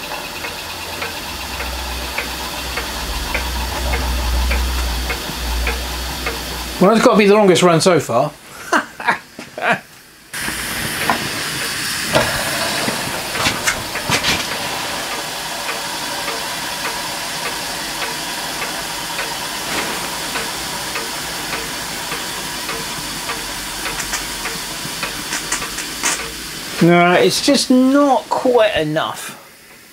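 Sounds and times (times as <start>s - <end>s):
faint regular ticking: 0.0s - 7.3s, 16.2s - 19.3s, 19.9s - 27.2s
steam hissing: 0.0s - 9.4s, 10.2s - 29.9s.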